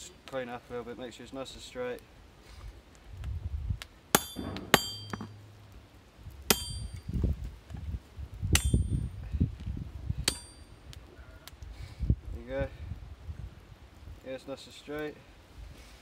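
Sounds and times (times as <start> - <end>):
hammer striking metal on anvil: 4.2 - 5.5, 6.5 - 7.0, 8.6 - 8.9, 10.2 - 10.6.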